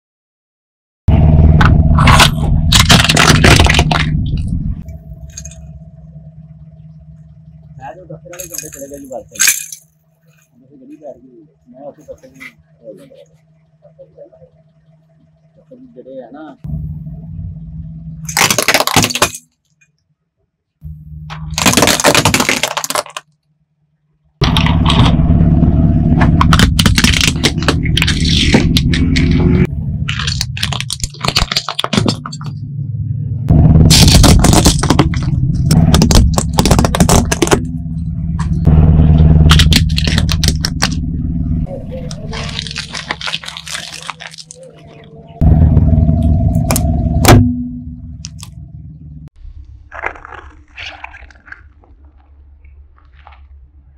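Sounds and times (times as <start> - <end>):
car engine hum: 1.1 - 19.4, 20.6 - 50.4
tyre crunching plastic toy: 2.0 - 4.4, 18.3 - 19.5, 21.3 - 23.4, 26.3 - 32.5, 33.9 - 37.7, 39.4 - 41.0, 41.9 - 45.1, 49.6 - 52.4
tyre crushing plastic whistles: 18.3 - 19.5, 21.4 - 23.3, 30.1 - 32.5, 33.9 - 37.7, 42.2 - 44.8.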